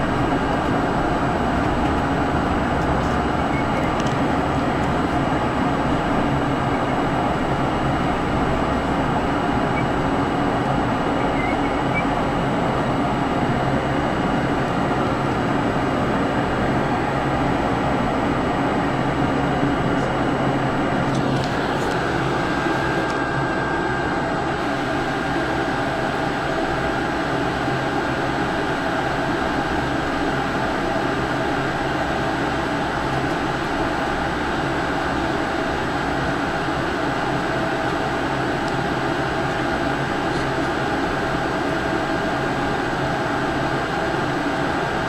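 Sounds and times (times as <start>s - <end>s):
turboprop cabin drone: 0.0s - 45.0s.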